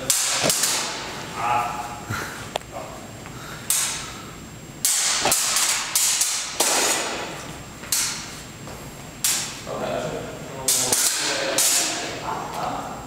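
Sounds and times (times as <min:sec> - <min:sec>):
steel sabres clashing: 0:00.0 - 0:01.3, 0:03.6 - 0:04.1, 0:04.8 - 0:08.3, 0:09.2 - 0:09.6, 0:10.6 - 0:12.2.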